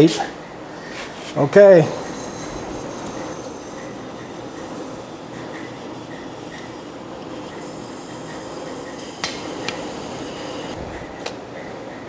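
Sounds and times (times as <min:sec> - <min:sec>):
chain hoist running: 0:01.9 - 0:10.8
faint regular ticking: 0:01.9 - 0:10.8.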